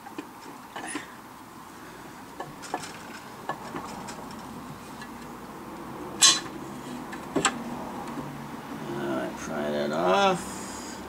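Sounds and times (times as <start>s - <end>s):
metal clinks and knocks: 2.4s - 5.2s.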